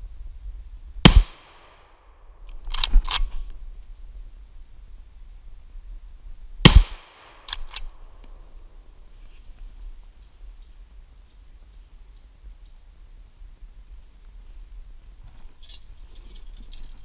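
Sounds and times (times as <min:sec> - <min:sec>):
rifle shots with echo: 0:01.0 - 0:01.9, 0:06.6 - 0:07.9
rifle action metallic clacks: 0:02.5 - 0:03.5, 0:07.3 - 0:08.0.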